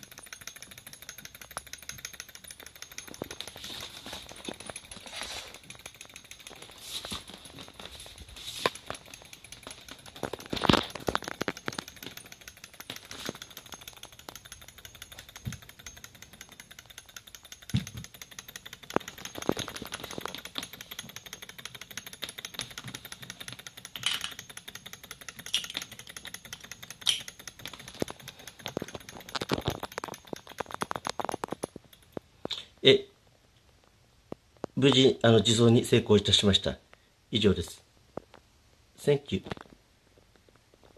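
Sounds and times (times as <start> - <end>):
model engine rapid clatter: 0.0 - 32.2.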